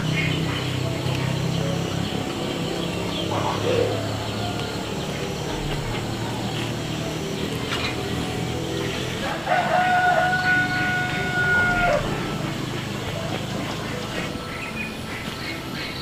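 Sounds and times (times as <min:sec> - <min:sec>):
rooster crowing: 0:03.3 - 0:07.4, 0:08.0 - 0:13.3.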